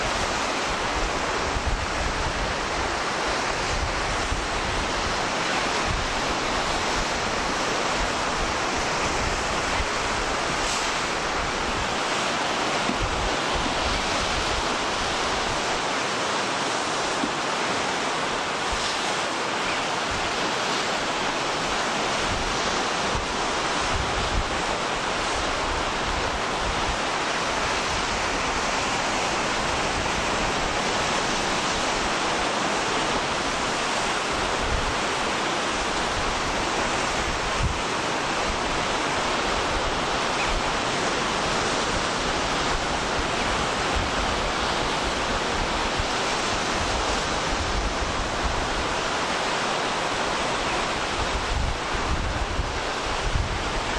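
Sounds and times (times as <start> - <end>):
sea surf: 0.0 - 53.9
wind buffeting microphone: 51.0 - 53.9.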